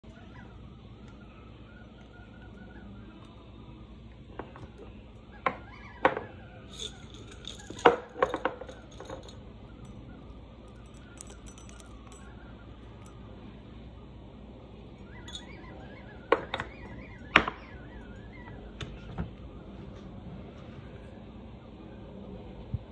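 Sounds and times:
cloves dropping into ceramic mug: 6.7 - 10.0, 10.8 - 12.2.

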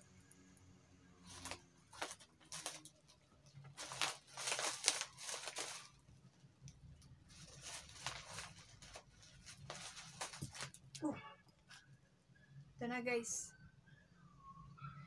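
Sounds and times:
plastic wrapping crinkling and tearing: 1.2 - 6.1, 7.3 - 11.0.

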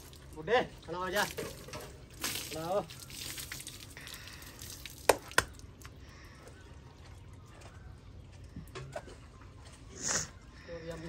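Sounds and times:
water splashing from a pail: 0.0 - 6.0.

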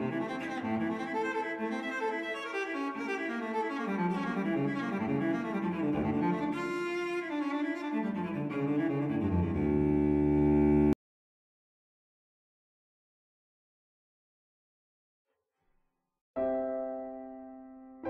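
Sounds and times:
bowed strings music: 0.0 - 11.0.

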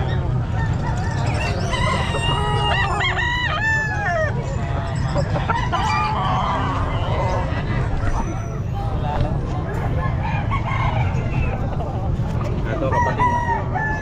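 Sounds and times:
rooster crowing: 1.2 - 4.4, 12.9 - 14.0.

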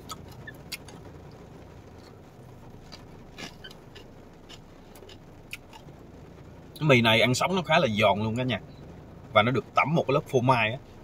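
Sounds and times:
low background hum: 0.0 - 11.0
crunchy noodles being chewed: 2.8 - 5.9.

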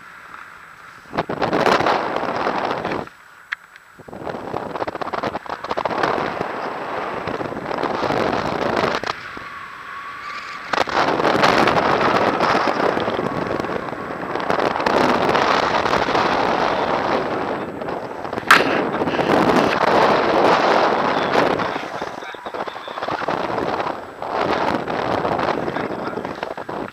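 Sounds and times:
wind buffeting microphone: 0.7 - 3.2, 3.9 - 26.9
sharp click: 18.5 - 18.8.

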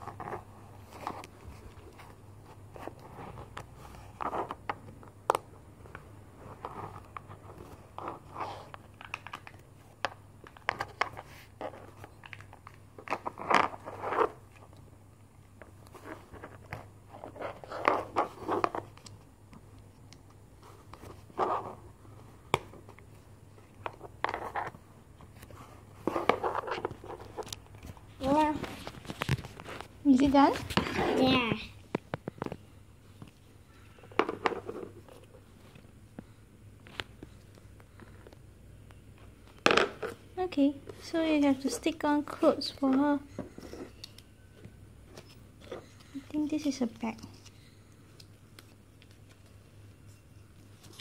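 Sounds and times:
plastic rubbing: 20.6 - 33.3.

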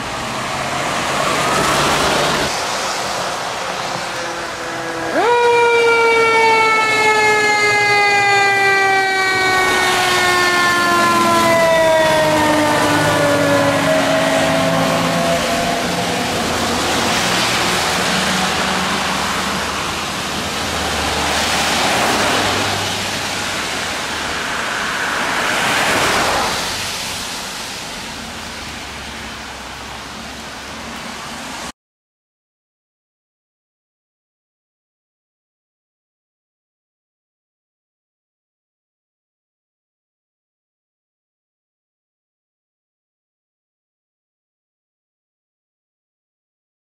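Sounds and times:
tyres hissing on wet road: 0.0 - 5.2, 9.9 - 31.7
fire engine siren wailing: 0.4 - 28.9.

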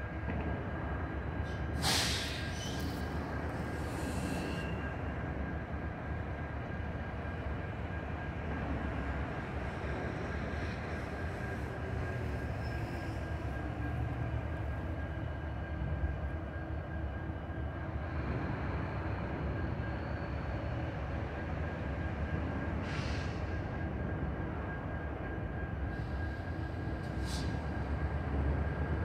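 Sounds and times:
short hiss: 1.8 - 2.8.

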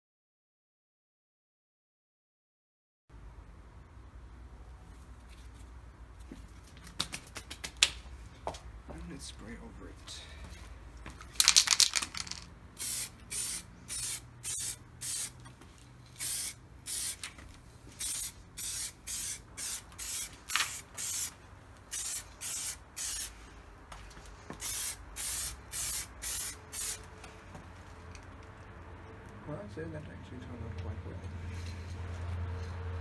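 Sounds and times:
spray paint can hissing: 11.4 - 15.4, 16.1 - 23.4, 24.6 - 27.1.

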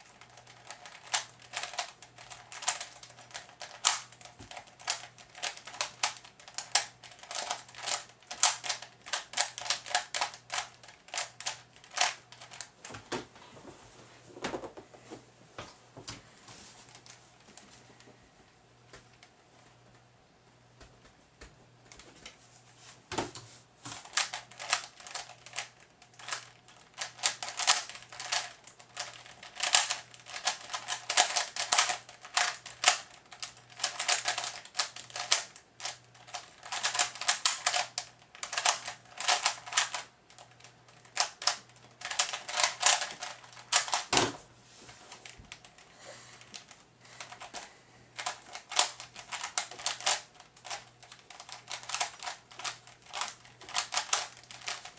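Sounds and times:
rapid plastic clicking: 0.1 - 12.7, 23.9 - 44.2, 46.4 - 54.9.

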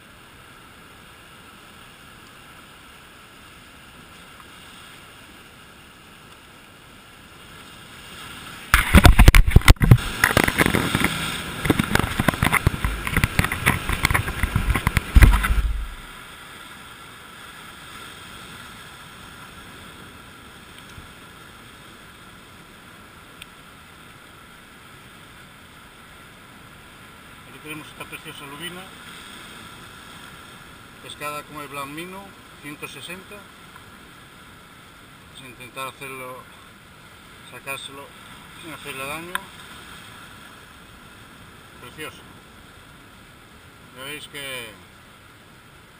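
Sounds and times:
breaking surf: 7.4 - 22.0, 27.2 - 34.3, 35.0 - 44.9
camera knocking on rock: 8.7 - 16.1
microphone handling noise: 8.7 - 16.2.

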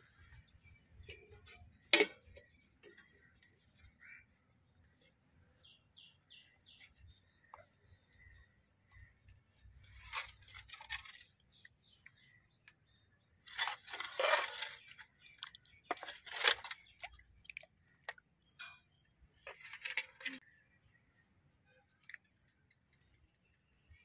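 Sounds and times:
thick curry sloshing: 13.4 - 18.4
metal ladle scraping a pot: 13.5 - 15.3, 15.9 - 17.0, 19.5 - 20.4.

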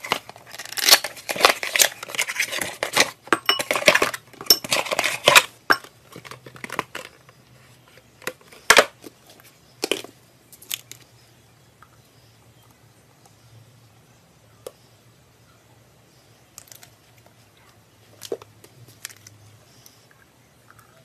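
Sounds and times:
cardboard tearing and rustling: 0.0 - 3.2.

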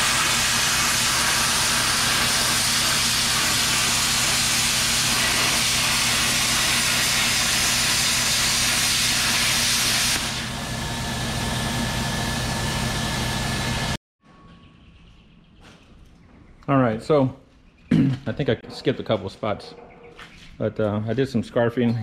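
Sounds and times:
cutting torch hissing: 0.0 - 14.0.

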